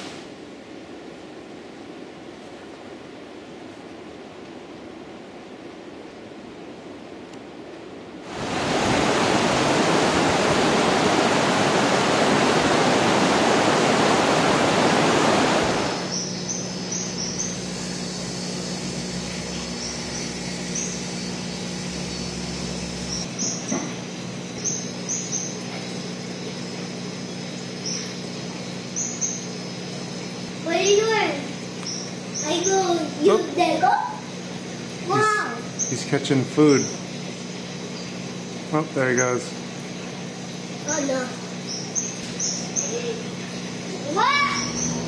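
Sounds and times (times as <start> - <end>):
river water rushing: 8.2 - 16.2
low hum: 8.3 - 32.5.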